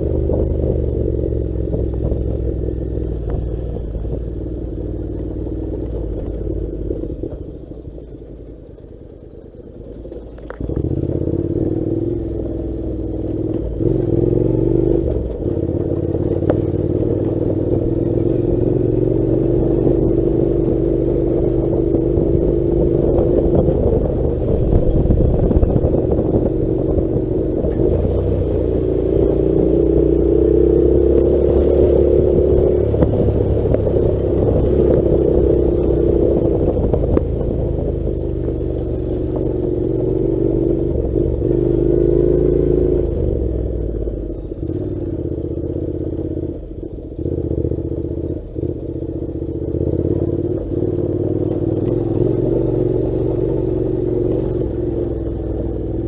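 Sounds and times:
motorcycle engine running: 0.0s - 56.0s
gravel clattering under tyres: 1.7s - 11.9s.

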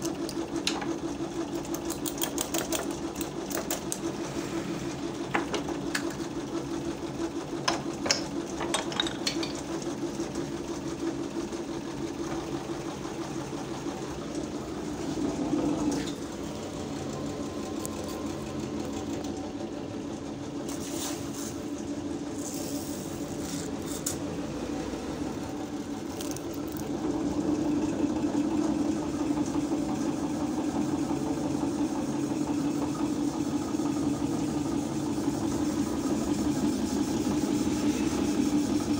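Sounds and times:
electric motor rattly hum: 0.0s - 38.9s
sharp metal clicks and taps: 1.6s - 4.0s.

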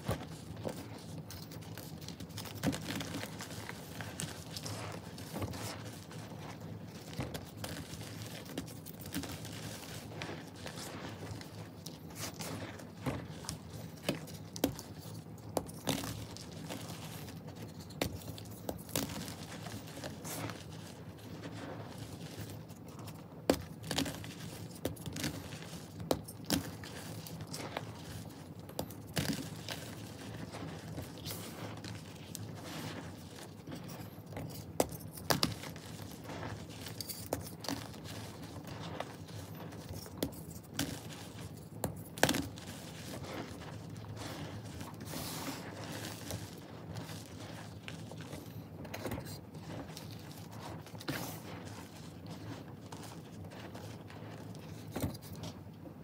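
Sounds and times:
hands crumbling dry powder blocks: 0.0s - 56.0s.

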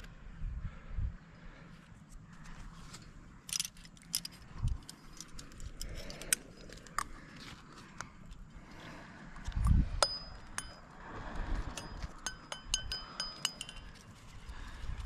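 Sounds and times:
climbing gear clinking: 2.4s - 8.4s, 9.4s - 15.0s.

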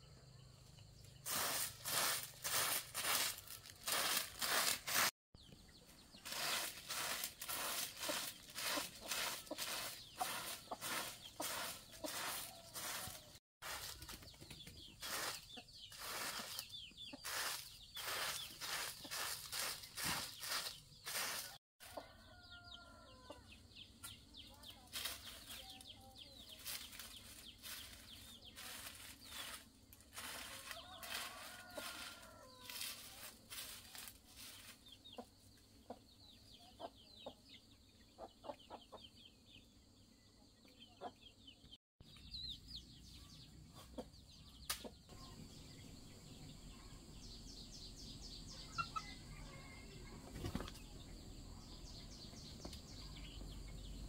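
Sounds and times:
broom sweeping dirt: 1.1s - 5.2s, 5.9s - 14.3s, 14.9s - 22.6s, 24.1s - 35.3s
chickens clucking: 5.6s - 29.5s, 30.2s - 39.2s, 40.6s - 41.3s, 43.6s - 45.4s, 48.6s - 51.0s.

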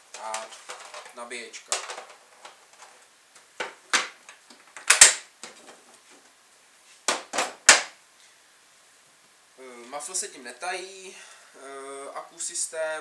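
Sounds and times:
plastic tool case clacks: 0.1s - 3.0s.

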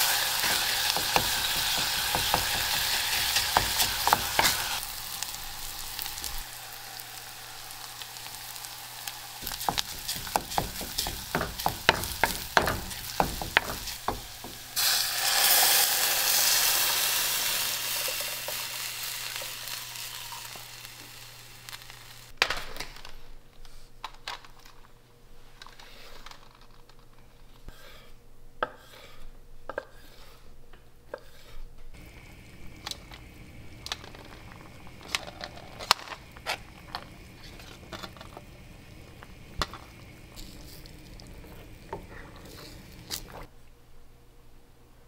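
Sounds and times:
wooden spoon stirring stew: 9.4s - 14.8s, 31.1s - 43.5s
spoon knocking against pot: 9.5s - 14.7s.

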